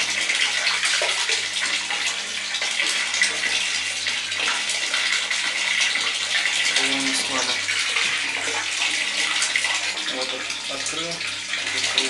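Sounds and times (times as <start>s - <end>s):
low electric pump hum: 0.0s - 12.0s
water splashing into bathtub: 0.0s - 12.0s.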